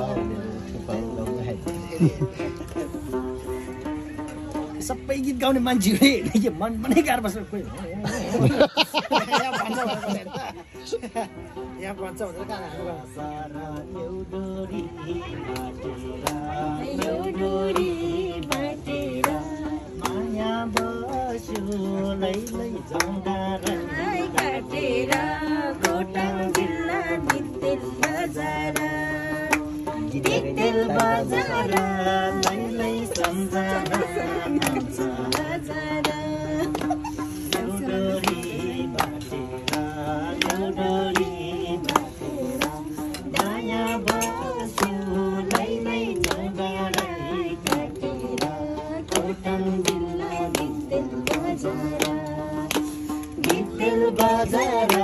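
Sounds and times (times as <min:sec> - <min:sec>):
people singing together: 0:00.0 - 0:04.7, 0:08.0 - 0:55.0
hand claps: 0:15.4 - 0:55.0.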